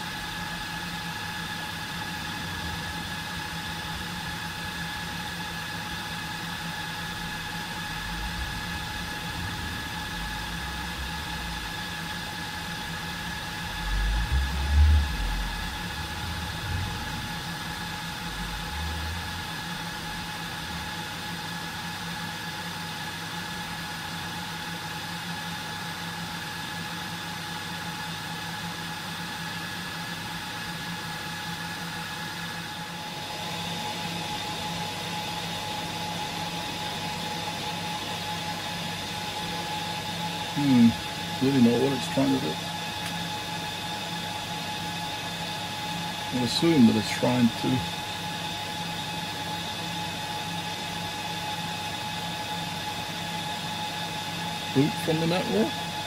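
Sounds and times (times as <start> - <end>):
server cooling fans running: 0.0 - 56.0
low rumbling bumps: 7.0 - 20.8.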